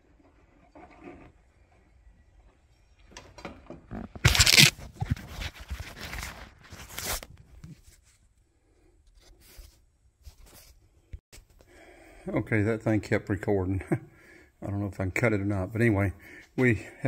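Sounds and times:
phone handling rustling: 4.2s - 6.0s.

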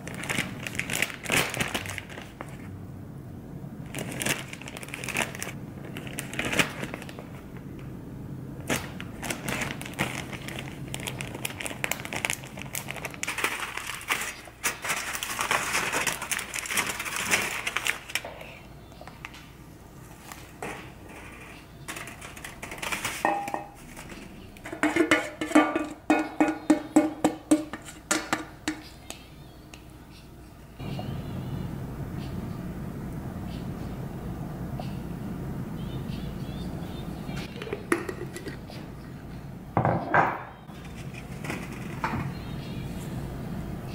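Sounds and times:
aluminium foil crinkling: 0.0s - 2.7s, 3.9s - 7.9s, 8.6s - 25.9s, 40.7s - 42.4s
plastic bag rustling: 0.0s - 2.7s, 3.8s - 7.8s, 8.6s - 18.6s, 19.9s - 25.9s, 40.7s - 42.3s.

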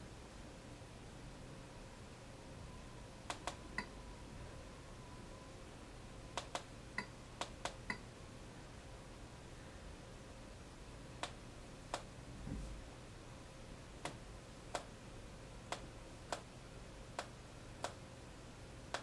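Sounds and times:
soft low thump: 12.4s - 12.8s.

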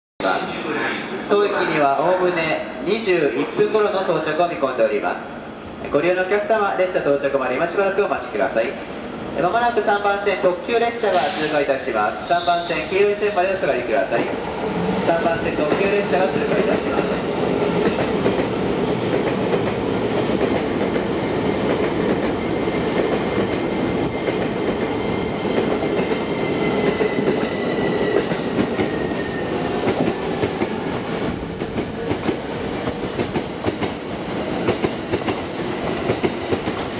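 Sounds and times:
train wheels rumbling on rail: 13.8s - 36.9s.

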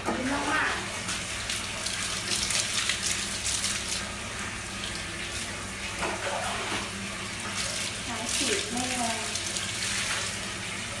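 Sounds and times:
water splashing on tiled floor: 0.2s - 10.6s
hands scrubbing soapy fur: 6.3s - 10.5s.

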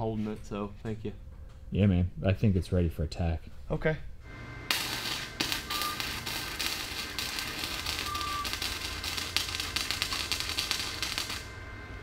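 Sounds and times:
low steady hum: 0.0s - 12.0s
welding arc crackling: 4.6s - 11.6s.

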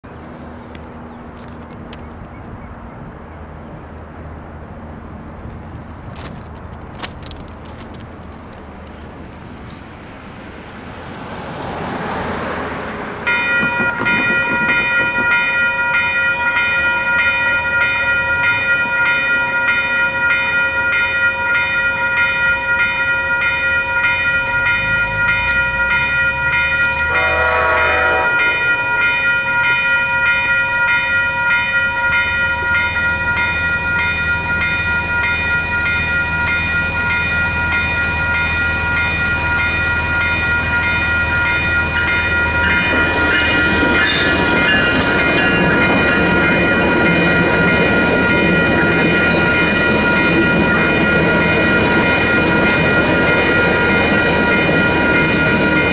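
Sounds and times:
low train rumble: 0.0s - 55.9s
railroad crossing bell ringing: 11.4s - 55.9s
short horn blare: 27.0s - 29.0s.

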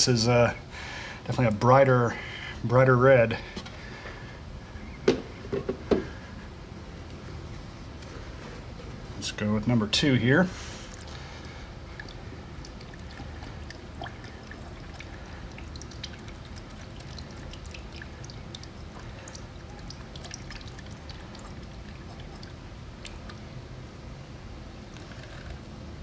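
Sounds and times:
fluid pouring into funnel: 10.9s - 23.4s, 24.9s - 25.6s
drips and bubbles ticking: 10.9s - 23.6s.

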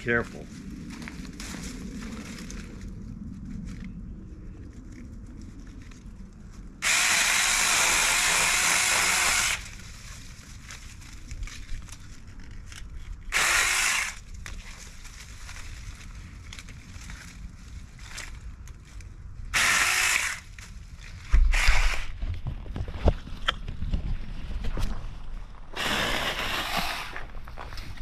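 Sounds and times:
electric chainsaw running: 6.8s - 9.7s, 13.3s - 14.2s, 19.6s - 20.5s.

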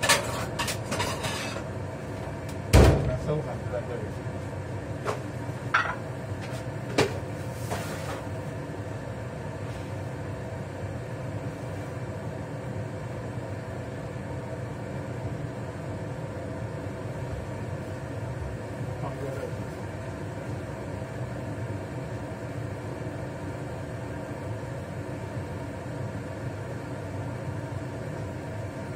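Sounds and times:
range hood fan humming: 0.0s - 28.9s
kitchenware knocks and clinks: 5.7s - 6.0s.

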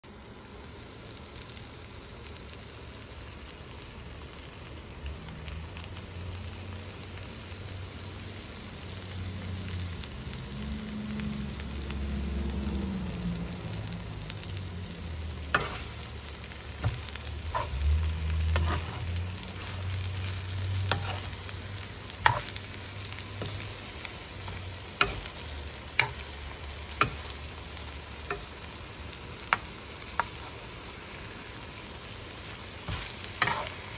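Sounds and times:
food sizzling in a wok: 0.0s - 33.9s
spatula striking wok: 15.4s - 16.0s, 16.7s - 17.8s, 20.8s - 21.5s, 24.4s - 27.5s.

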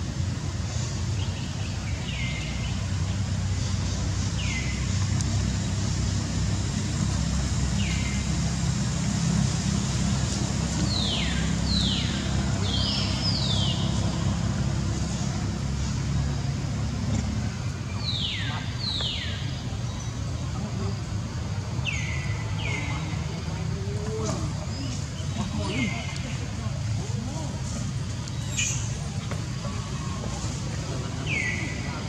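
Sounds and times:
steady low rumble: 0.0s - 32.0s.

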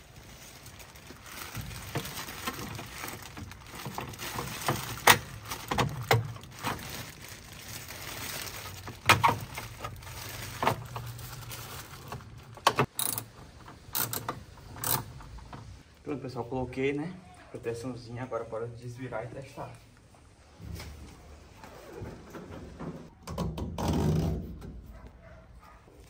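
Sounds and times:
plastic bag rustling: 0.0s - 12.9s.

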